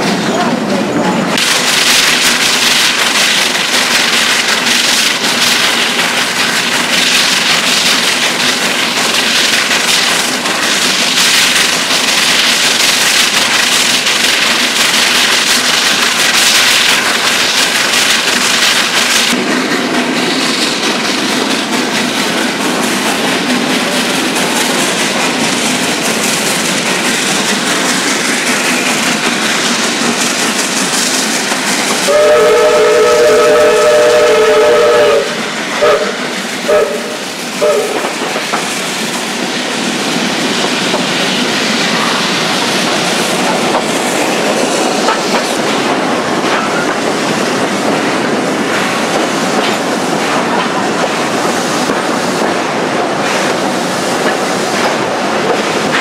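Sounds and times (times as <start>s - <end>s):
steam train running on track: 0.0s - 56.0s.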